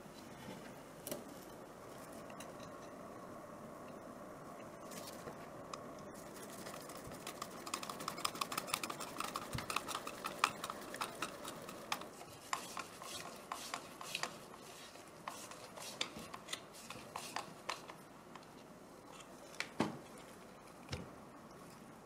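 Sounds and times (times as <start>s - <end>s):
screwdriver clicks and scrapes: 15.3s - 18.0s.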